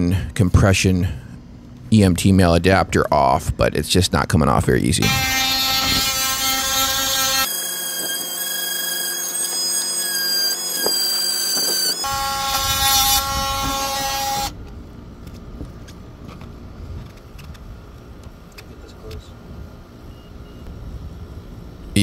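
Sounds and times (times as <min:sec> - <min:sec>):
loud mechanical whine: 0:04.8 - 0:15.4.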